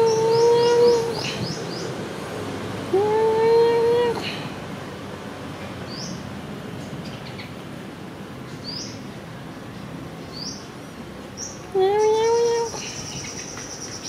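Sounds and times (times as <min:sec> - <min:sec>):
bird chirping: 0:11.4 - 0:14.0.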